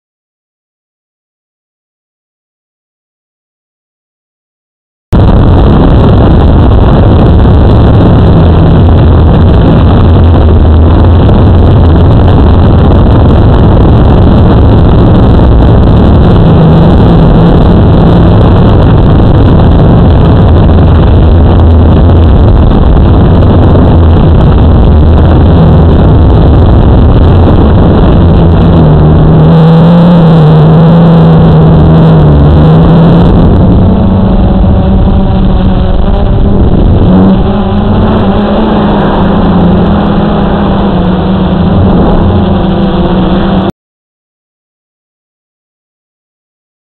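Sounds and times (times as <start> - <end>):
drone propellers buzzing: 5.2 - 43.7.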